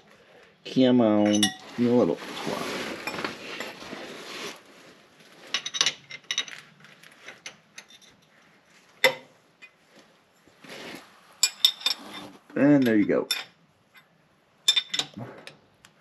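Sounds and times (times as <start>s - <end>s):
metal tools clinking: 1.2s - 2.0s, 5.5s - 8.4s, 11.4s - 14.1s, 14.7s - 15.2s.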